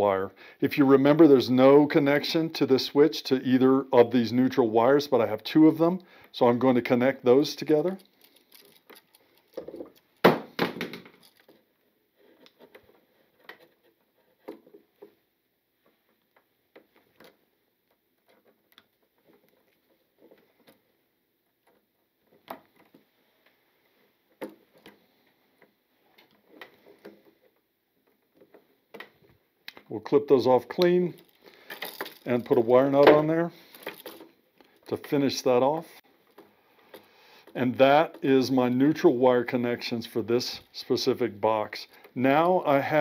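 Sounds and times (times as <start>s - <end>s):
pliers and wire clicking: 7.9s - 10.2s, 17.1s - 19.8s.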